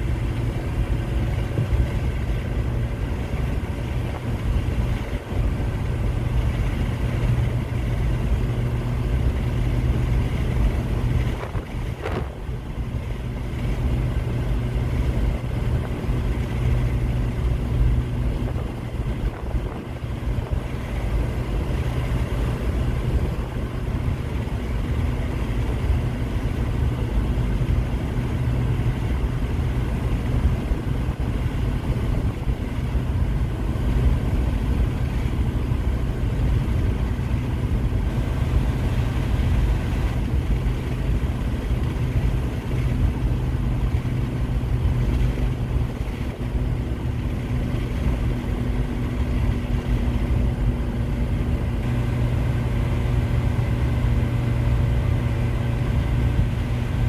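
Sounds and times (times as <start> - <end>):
constant hum: 0.0 - 57.0
engine and road noise drone: 0.0 - 57.0.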